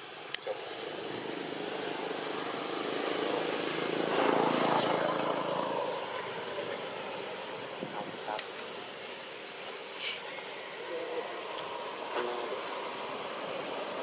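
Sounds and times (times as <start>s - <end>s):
passing motor engine: 0.5s - 9.0s.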